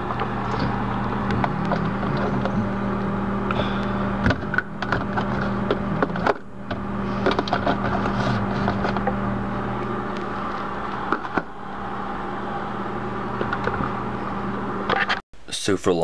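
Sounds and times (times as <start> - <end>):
steady low hum: 0.0 - 15.7.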